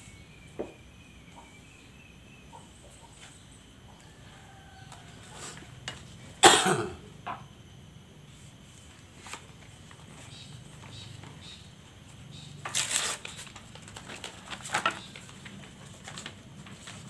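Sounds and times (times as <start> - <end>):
person coughing: 6.4 - 7.1.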